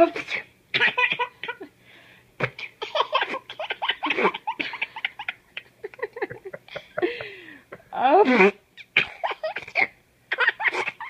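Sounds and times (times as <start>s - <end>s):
infant giggling: 2.8s - 7.4s.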